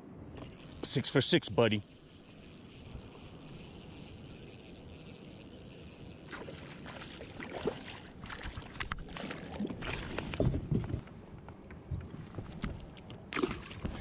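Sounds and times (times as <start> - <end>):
insects trilling: 0.4 - 7.2
fish splashing at the surface: 6.3 - 10.3.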